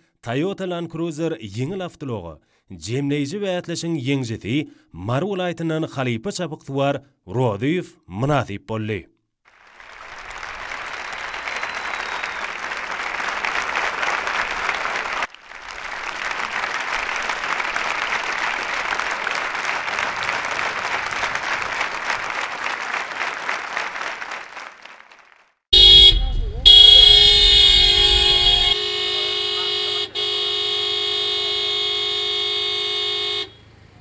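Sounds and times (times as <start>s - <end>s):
crowd applauding: 9.5s - 28.8s.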